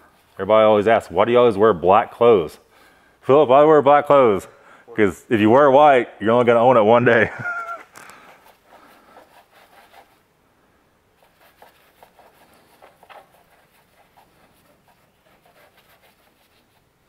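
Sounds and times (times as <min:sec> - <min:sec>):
gloved hands rubbing: 0:00.0 - 0:01.8, 0:07.4 - 0:10.3, 0:11.1 - 0:17.0.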